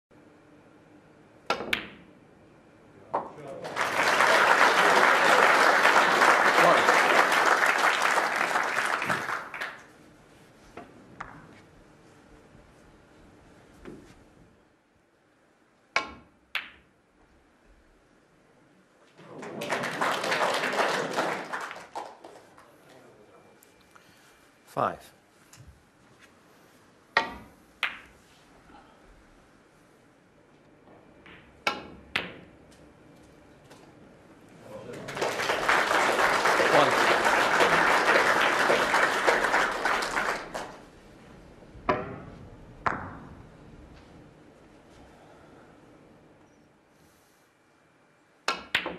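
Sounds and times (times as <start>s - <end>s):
audience applause: 3.6s - 9.9s, 19.2s - 22.7s, 34.8s - 40.8s
snooker balls clicking: 27.2s - 28.2s, 48.5s - 48.9s.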